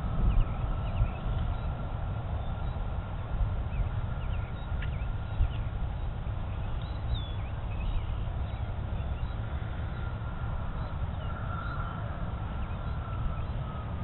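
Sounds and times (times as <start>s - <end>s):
distant jet engine rumble: 0.0s - 14.0s
faint jet engine whine: 0.0s - 14.0s
small birds chirping: 3.6s - 14.0s.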